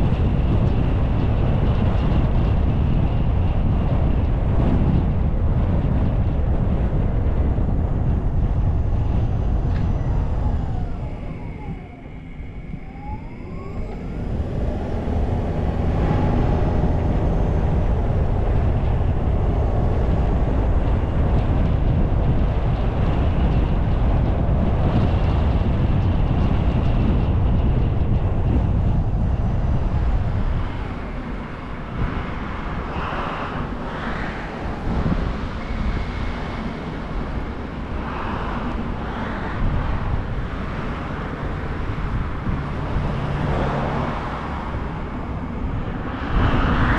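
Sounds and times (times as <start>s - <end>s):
car wind and road noise: 0.0s - 46.9s
cars passing: 6.7s - 25.7s, 28.5s - 46.9s.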